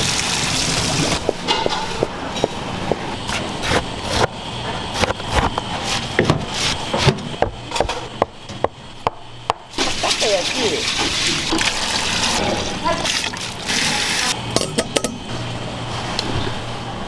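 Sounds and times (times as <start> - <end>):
tap water running: 0.0 - 1.2, 9.8 - 14.3.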